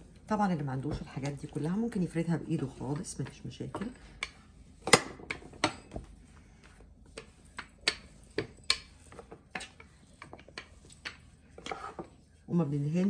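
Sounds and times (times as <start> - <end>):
rolling pin clicking and knocking: 7.1 - 12.1.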